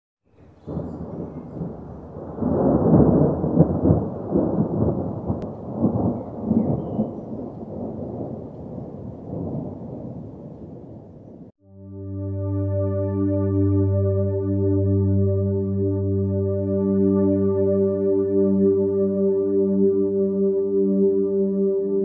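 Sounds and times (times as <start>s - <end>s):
rolling thunder: 0.6s - 11.5s.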